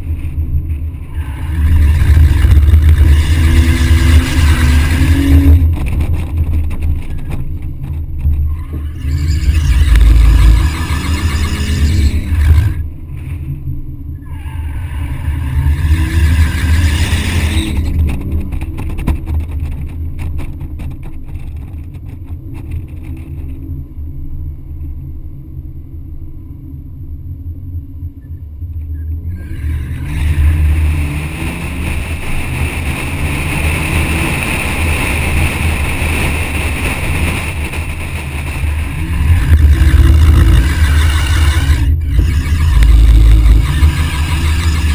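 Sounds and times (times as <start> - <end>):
wind on microphone: 0.0 - 13.4, 28.8 - 44.9
tyre squeal: 1.1 - 5.7, 8.5 - 12.8, 14.2 - 18.0, 38.9 - 44.9
car engine revving hard: 1.2 - 6.0, 8.8 - 12.8, 14.6 - 18.2, 29.4 - 44.9.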